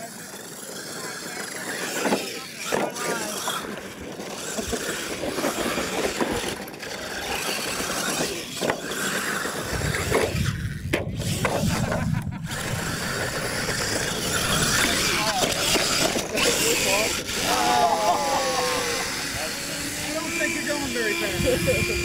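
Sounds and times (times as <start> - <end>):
toy truck motors whining: 0.0 - 22.0
low rumble: 9.7 - 15.1.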